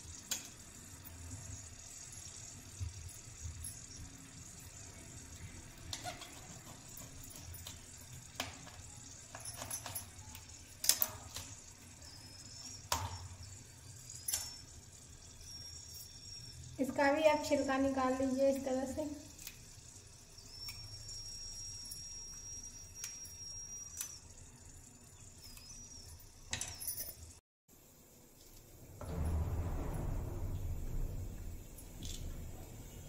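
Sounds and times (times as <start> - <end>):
low steady hum: 27.9 - 33.0.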